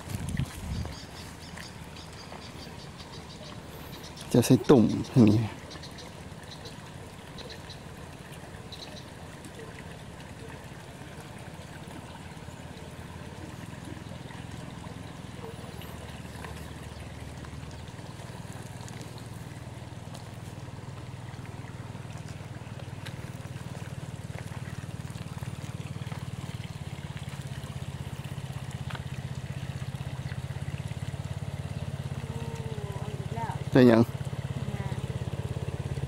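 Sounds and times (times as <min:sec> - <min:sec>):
small engine humming: 0:00.0 - 0:36.0.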